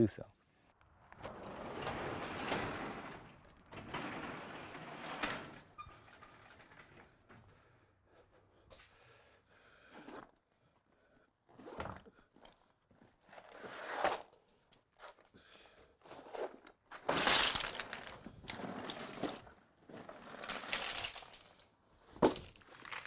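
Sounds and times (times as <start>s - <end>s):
vinyl bag rustling: 16.1s - 19.4s, 20.0s - 21.6s
stones grinding together: 17.0s - 23.0s.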